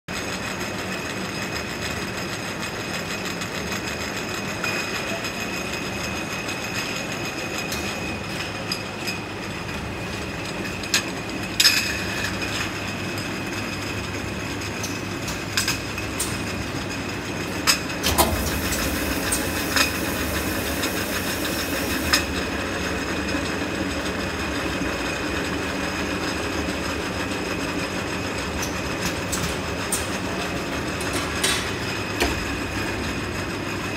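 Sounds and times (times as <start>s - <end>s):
machine rattling: 14.7s - 24.8s
high hiss: 18.4s - 22.3s.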